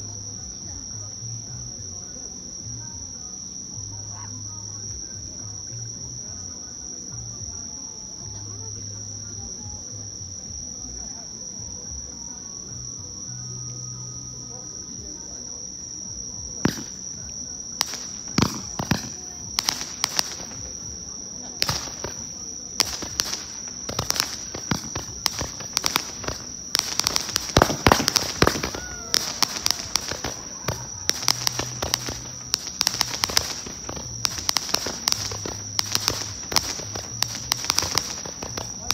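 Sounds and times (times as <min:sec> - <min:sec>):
high insect trill: 0:00.0 - 0:38.9
firework crackling pops: 0:15.7 - 0:38.9.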